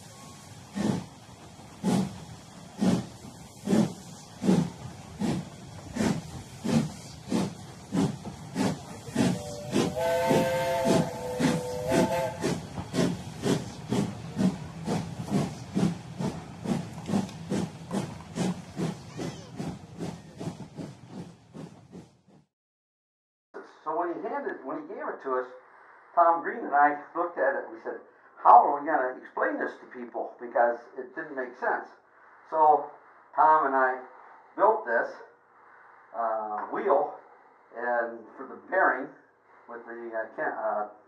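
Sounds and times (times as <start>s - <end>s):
steam locomotive chuffing: 0.0s - 22.5s.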